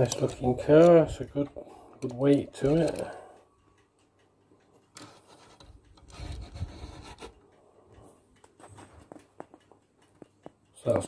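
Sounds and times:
toy car rolling on wood: 5.0s - 7.4s.

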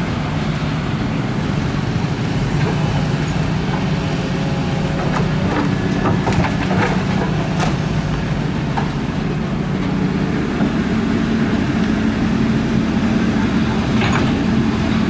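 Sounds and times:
diesel engine humming: 0.0s - 15.0s
knocks and clanks: 4.9s - 8.0s, 13.8s - 14.7s.

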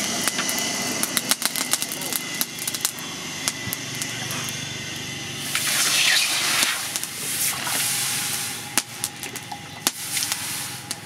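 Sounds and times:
sharp crackles: 0.0s - 11.0s
hot metal sizzling in water: 5.4s - 11.0s.

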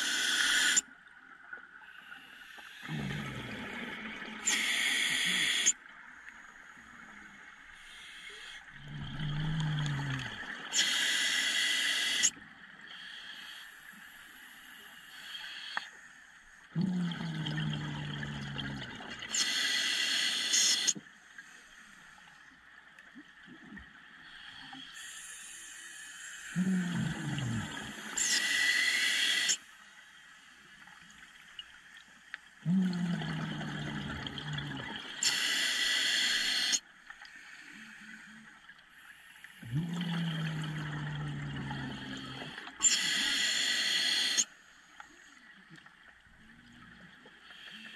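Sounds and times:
scuba regulator breathing: 0.0s - 0.8s, 2.1s - 5.7s, 24.4s - 29.7s, 35.2s - 38.4s, 39.0s - 44.5s.

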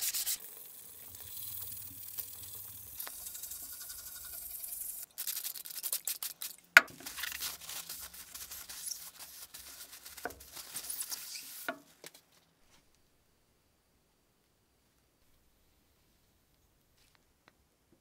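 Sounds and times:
handling scraping and rustling: 0.0s - 13.0s.

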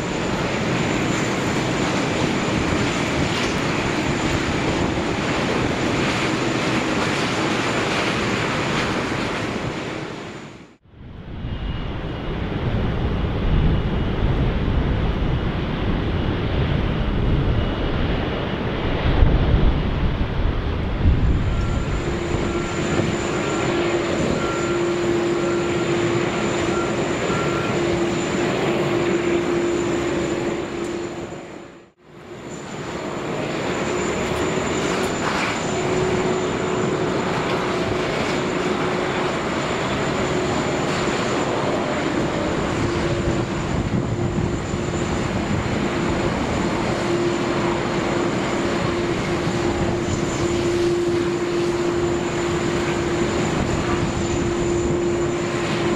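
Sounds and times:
jet engines running: 0.0s - 55.9s.

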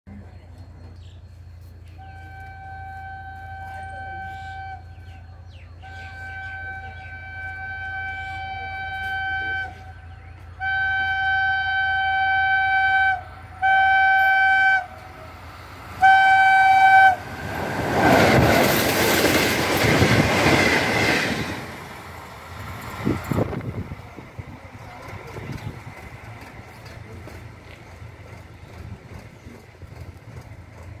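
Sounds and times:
locomotive horn blasts: 1.9s - 5.2s, 5.8s - 15.4s, 16.0s - 17.6s
train rushing past: 3.6s - 31.0s.

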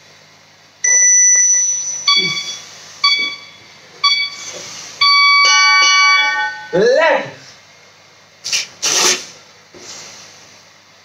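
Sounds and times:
interval timer beeping: 0.8s - 6.8s.

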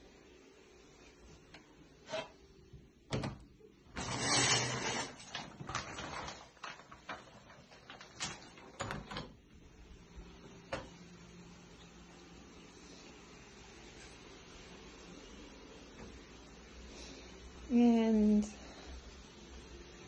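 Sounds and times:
shower curtain scraping on rod: 2.0s - 2.4s, 3.9s - 8.7s.

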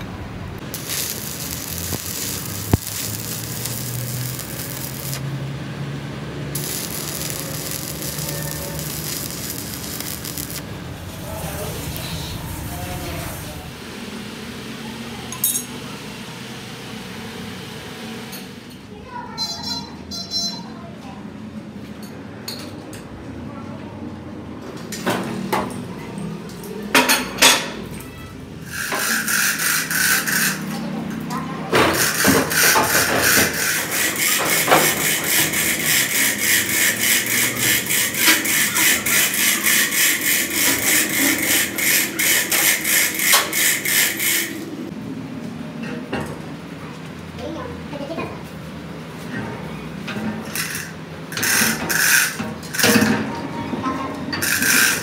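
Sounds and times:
welding arc crackling and sizzling: 0.6s - 14.5s, 28.6s - 30.8s, 31.8s - 44.9s, 54.4s - 55.0s.

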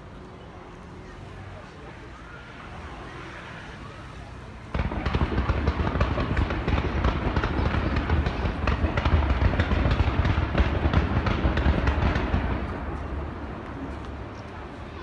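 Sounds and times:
fireworks cracks and pops: 4.7s - 13.1s.

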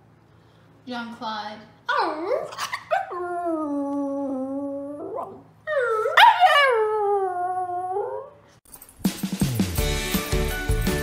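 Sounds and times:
dog howling: 1.9s - 8.4s.

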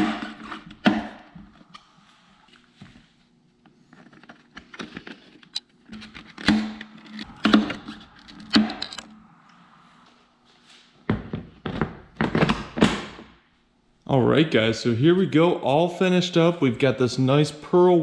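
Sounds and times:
faint low hum: 0.0s - 12.6s.

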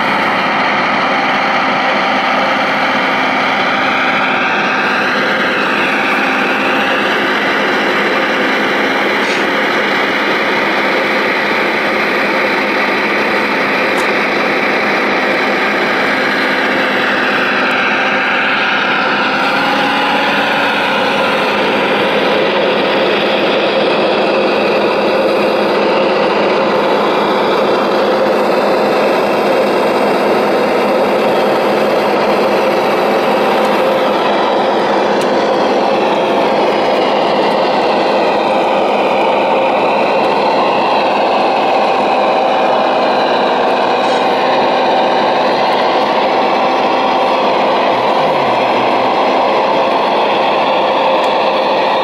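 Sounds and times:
model excavator mechanical whir: 0.0s - 52.0s.

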